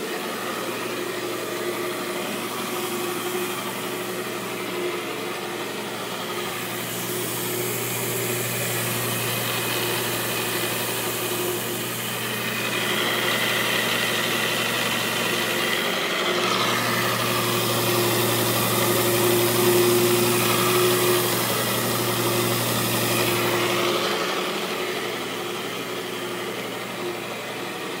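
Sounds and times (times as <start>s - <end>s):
brushes scrubbing carpet: 0.0s - 28.0s
carpet scrubber motor hum: 0.0s - 28.0s.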